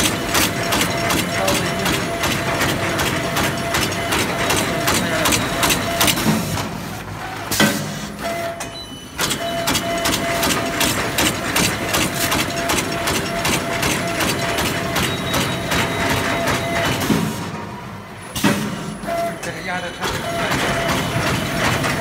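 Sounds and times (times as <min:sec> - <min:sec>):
machine clattering rapidly: 0:00.0 - 0:06.7, 0:09.2 - 0:17.4, 0:19.5 - 0:22.0.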